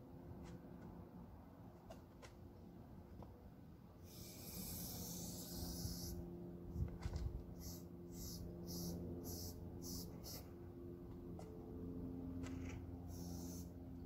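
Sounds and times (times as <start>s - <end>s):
spray paint can hissing: 4.0s - 6.2s, 7.6s - 10.4s, 13.1s - 13.7s.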